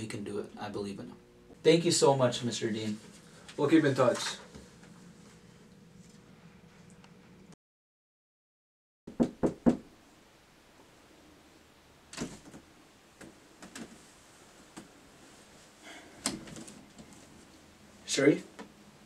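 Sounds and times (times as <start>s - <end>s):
knocks on a door: 9.1s - 9.9s.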